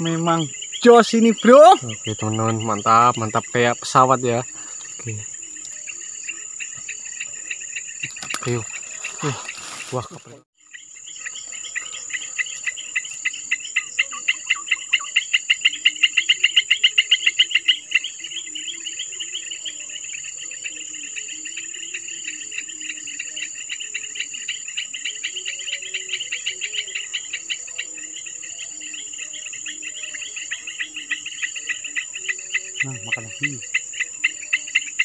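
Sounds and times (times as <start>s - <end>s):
insects chirping trill: 0.0s - 35.0s.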